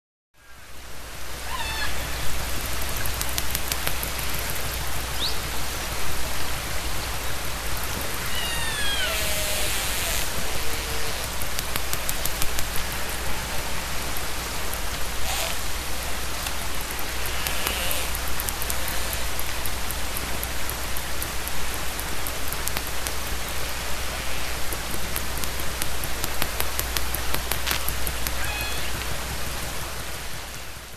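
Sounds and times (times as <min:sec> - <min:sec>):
faint high calls: 0:00.4 - 0:05.6, 0:07.9 - 0:11.7, 0:15.0 - 0:19.8, 0:28.1 - 0:29.3
rushing water: 0:00.4 - 0:30.9.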